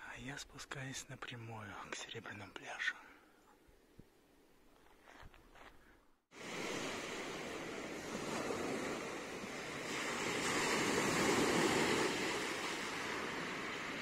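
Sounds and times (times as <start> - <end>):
sea surf washing ashore: 6.4 - 14.0.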